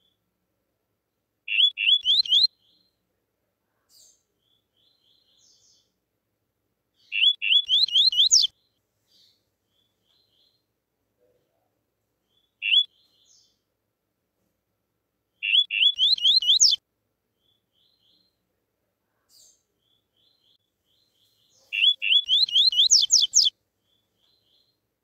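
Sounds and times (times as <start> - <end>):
bird singing upslurred notes: 1.5 - 3.0, 7.0 - 10.6, 12.3 - 13.6, 15.4 - 16.8, 19.4 - 24.8.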